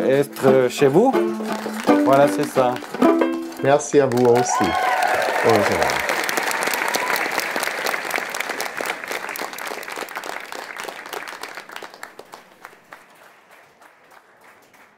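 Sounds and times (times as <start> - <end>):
audience applauding: 0.9 - 14.9.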